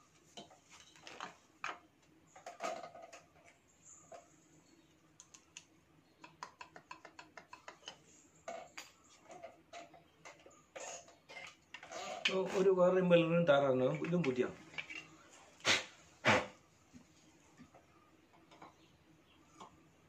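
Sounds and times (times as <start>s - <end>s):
small ticks: 5.1s - 8.1s
pump parts clicking and knocking: 5.2s - 12.4s.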